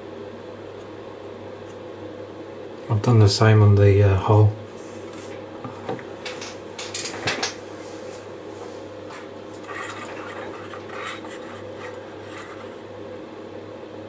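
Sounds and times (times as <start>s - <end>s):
steady low hum: 0.0s - 14.0s
plastic scraping on cardboard: 9.1s - 12.8s.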